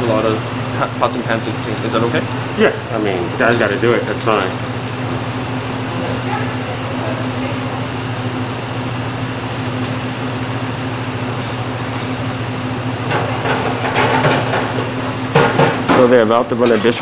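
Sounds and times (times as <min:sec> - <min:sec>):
kitchen exhaust fans humming: 0:00.0 - 0:17.0
pans and utensils clattering: 0:13.1 - 0:17.0.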